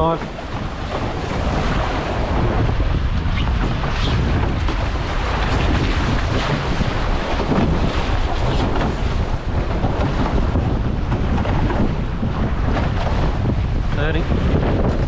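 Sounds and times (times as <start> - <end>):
water rushing along hulls: 0.0 - 15.0
wind rumble on microphone: 0.0 - 15.0.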